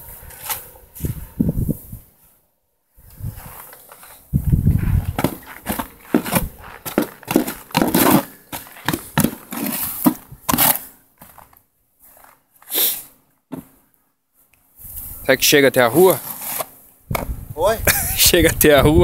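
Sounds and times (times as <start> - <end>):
snow shovel scraping snow: 3.2 - 11.4, 12.0 - 13.1, 15.8 - 16.8.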